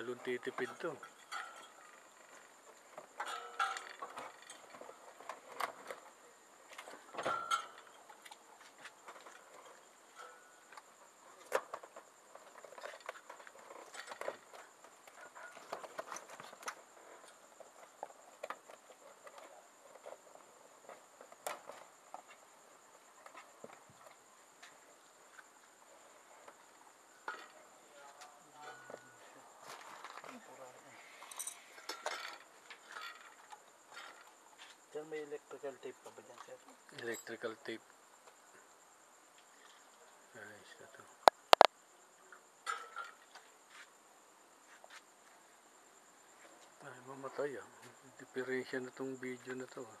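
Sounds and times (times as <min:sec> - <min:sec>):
crickets chirping: 0:00.0 - 0:50.0
hands tapping and rustling parts: 0:41.3 - 0:41.7.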